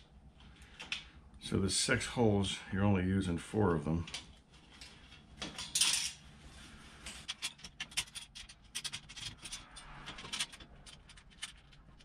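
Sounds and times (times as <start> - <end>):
metal scrape: 5.9 - 12.0
metal bolts clicking and rubbing: 7.1 - 12.0.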